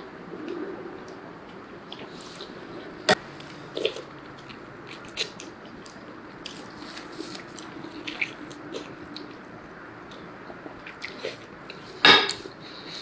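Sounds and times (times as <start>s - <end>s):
person chewing meat: 3.2s - 13.0s.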